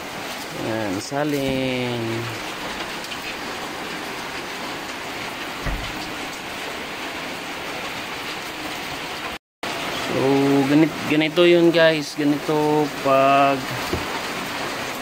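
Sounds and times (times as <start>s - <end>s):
chicken deep-frying in oil: 0.0s - 15.0s
dull thump: 5.6s - 6.2s, 13.9s - 14.1s.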